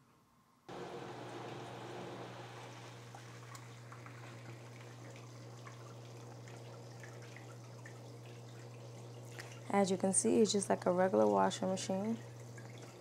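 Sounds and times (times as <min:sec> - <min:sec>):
steady low hum: 0:00.7 - 0:13.0.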